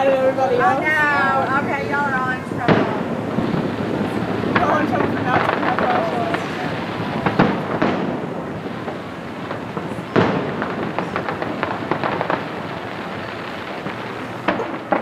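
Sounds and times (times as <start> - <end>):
fireworks booming: 0.0 - 15.0
fireworks crackling: 0.0 - 15.0.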